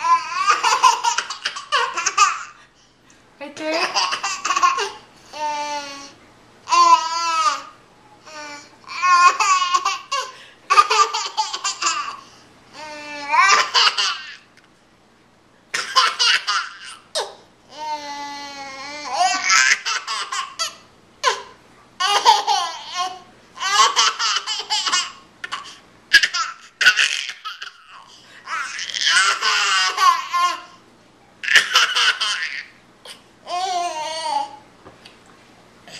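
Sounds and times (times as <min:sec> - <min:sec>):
baby laughing: 0:00.0 - 0:02.6, 0:03.7 - 0:06.1, 0:08.3 - 0:12.2, 0:12.8 - 0:14.5, 0:15.7 - 0:17.4, 0:18.9 - 0:30.8, 0:31.4 - 0:34.6.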